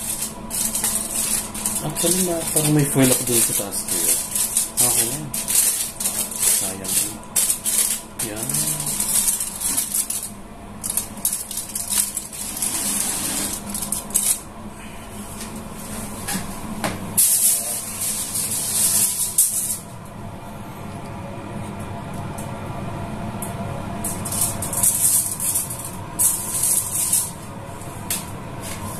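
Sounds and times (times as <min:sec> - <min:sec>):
wrapping material crinkling: 0:00.0 - 0:14.4, 0:24.1 - 0:27.4
low hum: 0:00.0 - 0:28.5.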